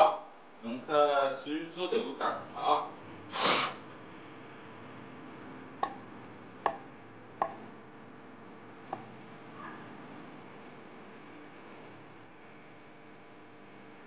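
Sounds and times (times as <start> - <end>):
brief loud hiss: 3.3 - 3.8.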